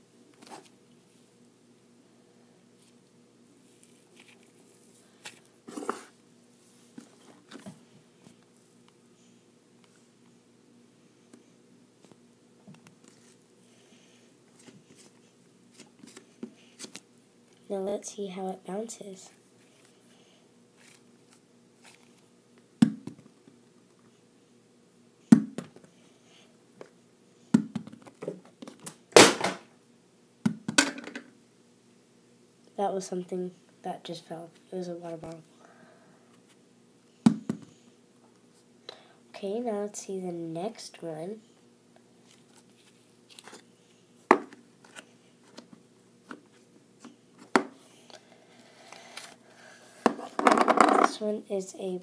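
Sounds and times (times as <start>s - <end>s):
dough ball thudding on desk: 22.8s - 23.3s.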